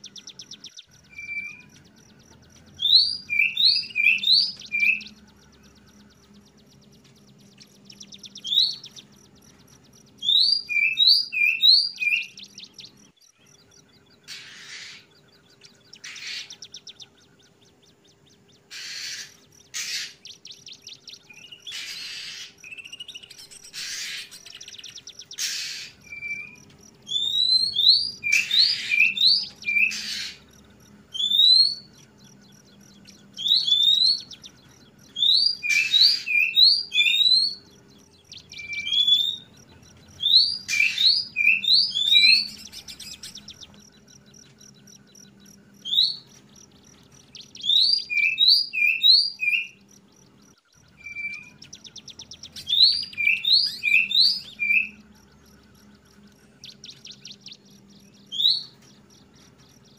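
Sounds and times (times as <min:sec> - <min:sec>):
bird whistled call: 0:00.0 - 0:01.9, 0:02.8 - 0:05.2, 0:10.2 - 0:12.9, 0:18.7 - 0:30.4, 0:31.1 - 0:31.9, 0:33.3 - 0:34.5, 0:35.1 - 0:37.6, 0:38.3 - 0:39.5, 0:40.2 - 0:43.7, 0:47.4 - 0:49.8, 0:51.0 - 0:55.0
harsh bird bursts: 0:14.3 - 0:15.1, 0:16.0 - 0:16.8, 0:18.6 - 0:20.4, 0:21.5 - 0:30.5.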